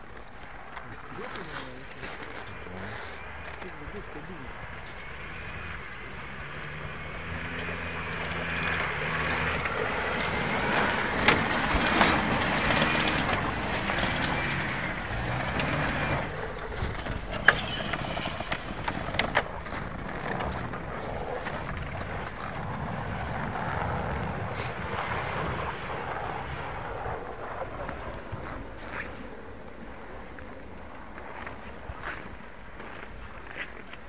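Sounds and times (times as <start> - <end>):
tyres crunching over snow: 0.0 - 34.0
van engine revving: 2.0 - 29.0.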